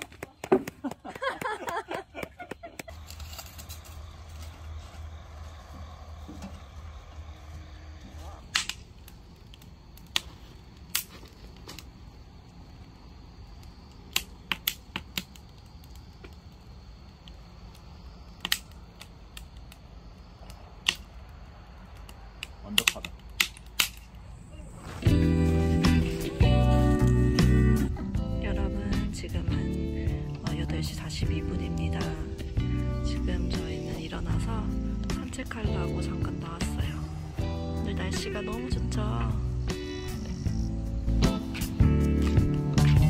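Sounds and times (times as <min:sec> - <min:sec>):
firewood crackling and popping: 0:00.0 - 0:28.0, 0:41.2 - 0:43.0
voices: 0:24.2 - 0:26.4, 0:33.0 - 0:40.8.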